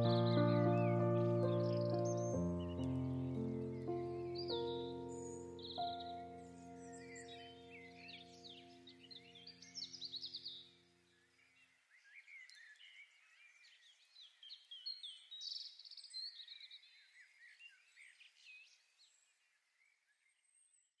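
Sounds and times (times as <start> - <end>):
backing music track: 0.0 - 6.9
birdsong chirps and trills: 0.0 - 19.2.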